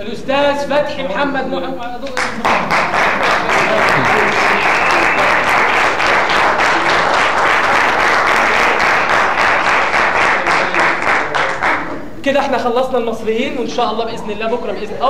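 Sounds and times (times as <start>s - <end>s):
audience applauding: 2.2s - 12.0s.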